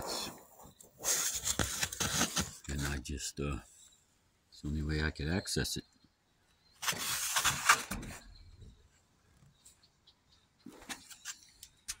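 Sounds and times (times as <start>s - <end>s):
dirt scraped from metal gutter: 6.8s - 8.4s.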